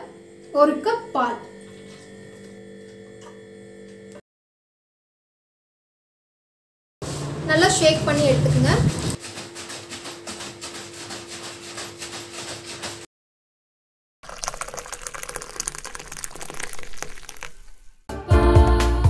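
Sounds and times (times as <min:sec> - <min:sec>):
liquid pouring into glass: 0:14.2 - 0:18.0
liquid sloshing in plastic bottle: 0:14.2 - 0:18.0.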